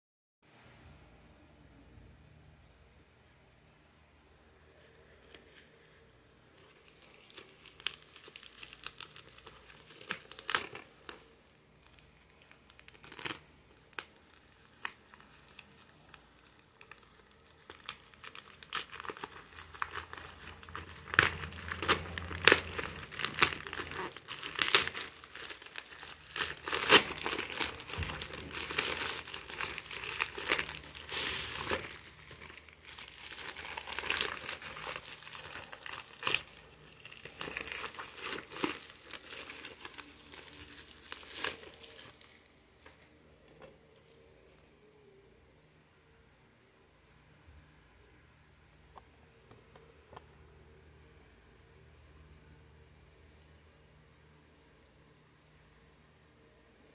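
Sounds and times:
plastic mailer crinkling and tearing: 0:05.1 - 0:43.1.

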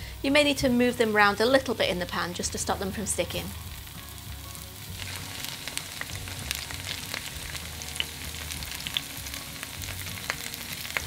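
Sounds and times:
potatoes sizzling in oil: 0:00.0 - 0:11.0
oil crackling and popping: 0:03.7 - 0:11.0.

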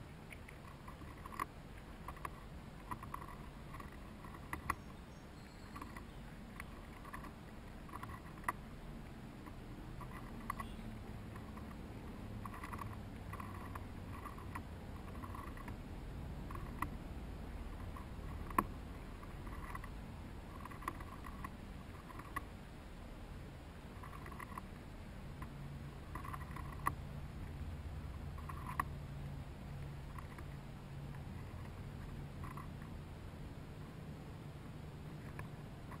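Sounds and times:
sharp clicks: 0:00.0 - 0:15.8, 0:17.8 - 0:22.5
chipmunks gnawing corn: 0:00.0 - 0:36.0.

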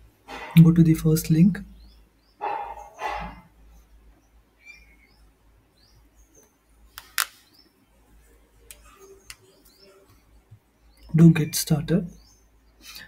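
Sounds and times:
faint bird chirps: 0:08.5 - 0:13.0.

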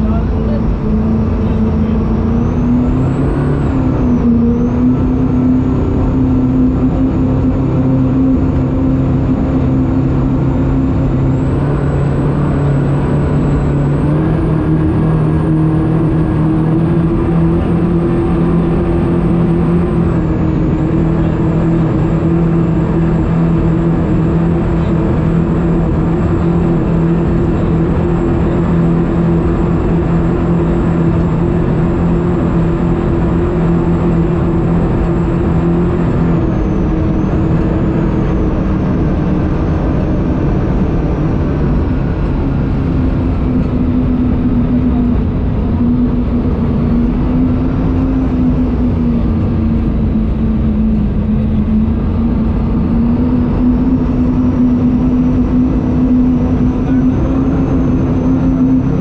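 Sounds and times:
boat engines running hard: 0:00.0 - 0:59.0.

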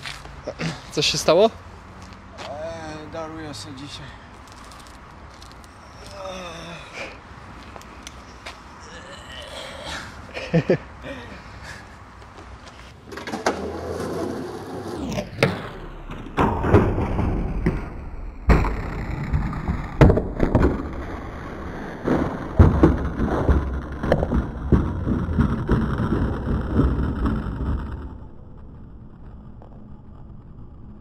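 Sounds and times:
skateboard rolling on pavement: 0:11.5 - 0:31.0
skateboard and skater crashing: 0:12.7 - 0:28.2.

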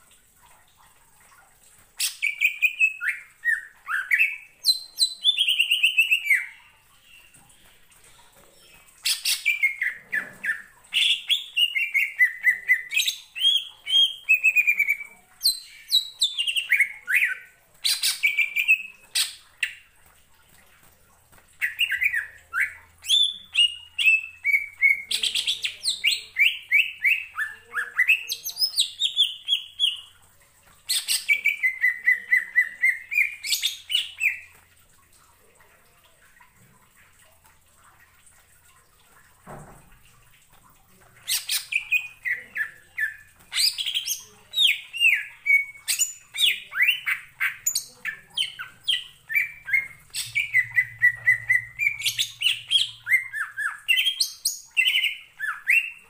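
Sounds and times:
bird singing whistles and chirps: 0:44.7 - 0:56.0.

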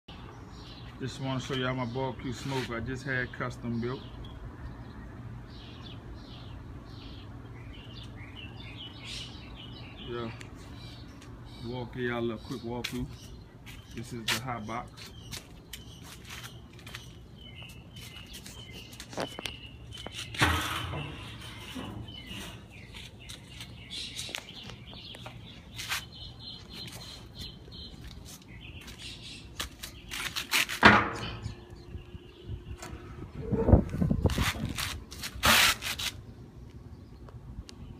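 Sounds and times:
birds chirping: 0:00.1 - 0:35.1, 0:36.1 - 0:37.9.

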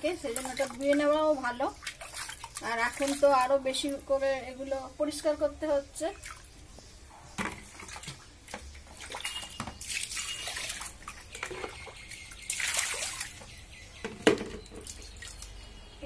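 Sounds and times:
water splashing and pouring: 0:00.2 - 0:03.6, 0:07.4 - 0:13.5
mug knocking in bucket: 0:14.0 - 0:14.9.

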